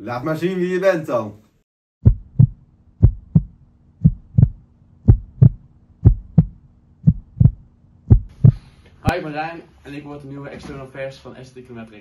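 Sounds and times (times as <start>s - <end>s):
heartbeat double thumps: 2.0s - 8.7s.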